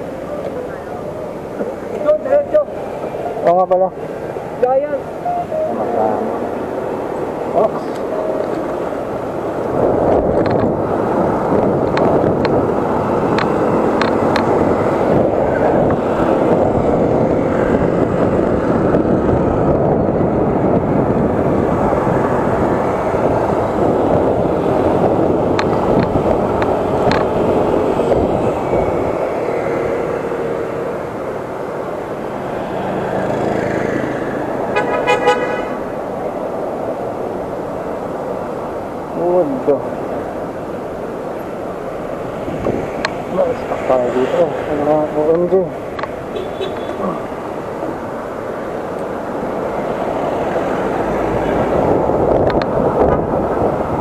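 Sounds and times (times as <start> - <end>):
wind and road noise: 0.0 - 54.0
vehicle horn toot: 5.3 - 6.4, 34.8 - 35.8, 46.3 - 47.0.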